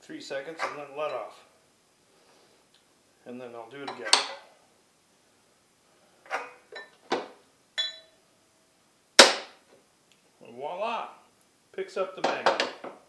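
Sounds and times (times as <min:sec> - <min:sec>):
metal clinks: 0:07.8 - 0:08.2.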